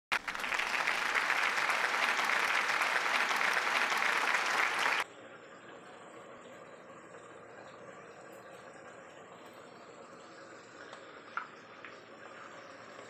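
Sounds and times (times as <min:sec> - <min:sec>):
crowd applauding: 0:00.1 - 0:05.0.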